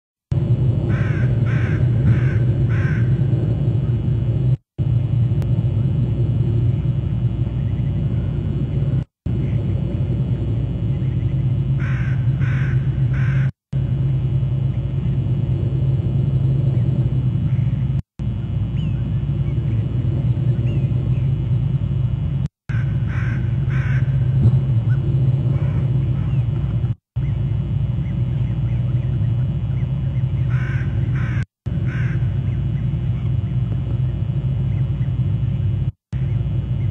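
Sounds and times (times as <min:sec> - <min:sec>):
steady low rumble: 0:00.3 - 0:36.9
bird giving harsh calls: 0:00.9 - 0:03.2, 0:11.8 - 0:13.5, 0:22.7 - 0:26.6, 0:30.4 - 0:33.2.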